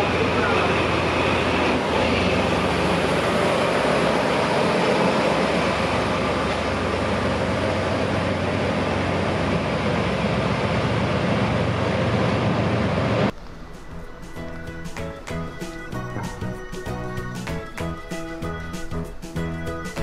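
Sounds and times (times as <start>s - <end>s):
diesel locomotive running: 0.0s - 20.0s
train cars rolling on track: 0.0s - 20.0s
music: 13.4s - 20.0s.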